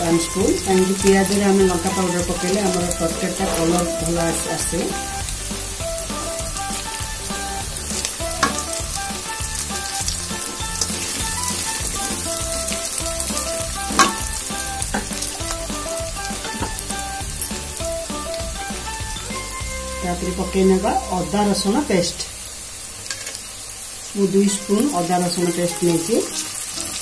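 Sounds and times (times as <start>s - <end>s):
wooden spatula stirring: 0.0s - 17.3s
soft background music: 0.0s - 22.2s, 24.2s - 27.0s
spices sizzling in hot oil: 0.0s - 27.0s.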